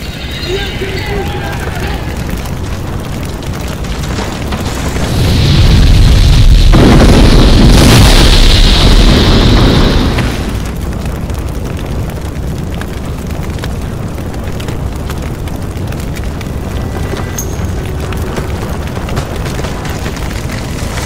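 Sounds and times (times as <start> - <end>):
scattered crackles: 0.0 - 21.0
explosion boom: 4.1 - 10.7.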